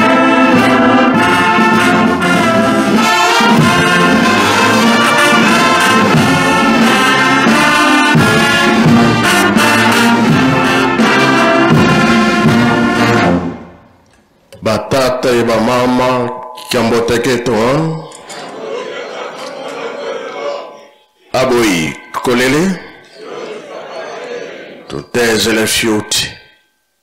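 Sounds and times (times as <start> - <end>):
brass band playing: 0.0 - 13.9.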